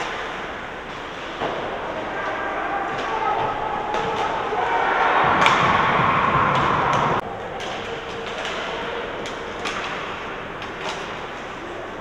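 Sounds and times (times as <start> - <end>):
arena noise: 0.0 - 12.0
hockey sticks and puck clacking: 0.0 - 12.0
loud rush of noise: 1.8 - 7.6.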